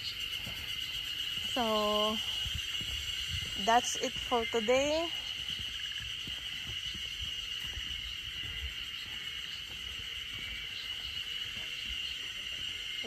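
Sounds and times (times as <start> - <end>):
insects chirring: 0.0 - 13.0.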